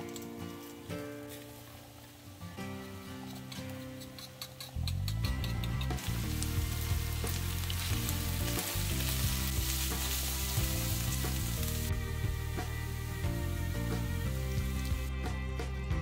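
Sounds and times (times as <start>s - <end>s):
chicken sizzling in hot oil: 4.6s - 15.1s.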